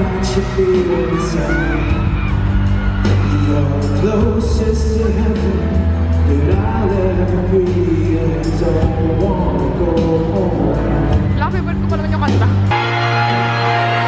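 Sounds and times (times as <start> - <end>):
man singing into a microphone: 0.0 - 2.2, 3.1 - 11.2
amplified accompaniment: 3.0 - 14.0.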